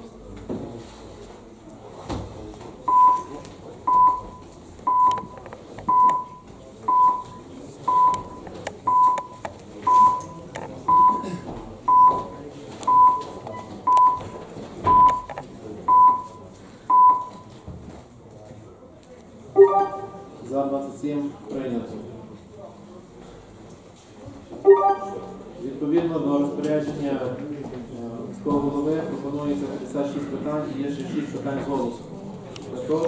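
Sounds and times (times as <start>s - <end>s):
low murmur of voices: 0.0s - 33.0s
short electronic beeps: 3.9s - 11.2s, 14.9s - 15.3s, 15.9s - 17.4s, 19.6s - 20.4s, 24.7s - 25.4s.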